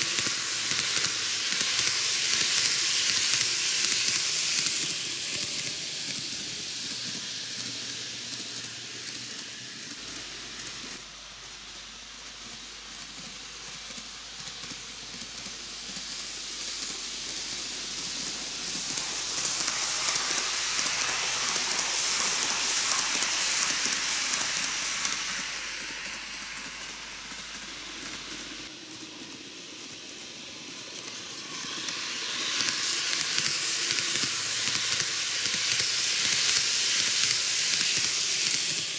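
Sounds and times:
small electric motor: 0:00.0 - 0:11.1, 0:12.4 - 0:38.9
model train wheels clattering on rails: 0:00.0 - 0:38.9.

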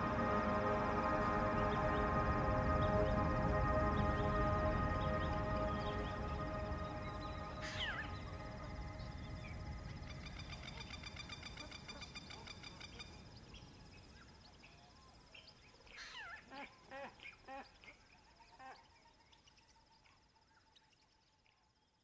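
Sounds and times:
bird calls: 0:07.1 - 0:13.6.

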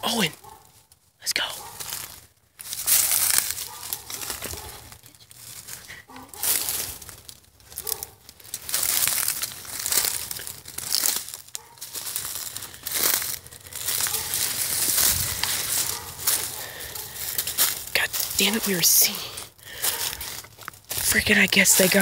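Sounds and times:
footsteps crunching through dry leaves: 0:00.0 - 0:22.0.

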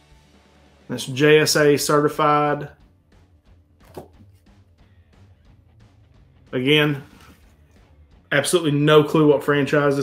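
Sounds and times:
faint background music: 0:00.0 - 0:10.0.

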